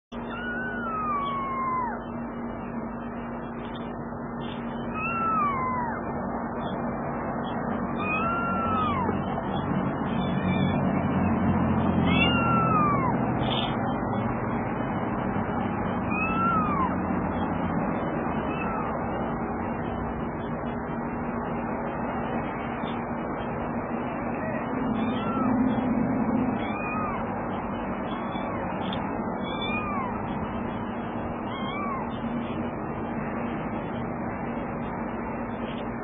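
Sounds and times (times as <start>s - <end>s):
kitten meowing: 0.1s - 2.2s, 4.8s - 6.8s, 7.9s - 13.8s, 16.0s - 17.0s, 18.4s - 19.0s, 24.3s - 27.3s, 28.1s - 30.3s, 31.4s - 32.3s.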